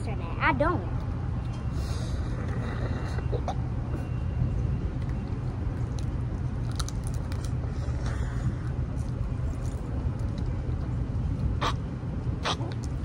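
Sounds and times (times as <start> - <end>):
steady low rumble: 0.0 - 13.0
chewing: 5.0 - 11.8
crawfish shells being peeled: 5.8 - 8.2.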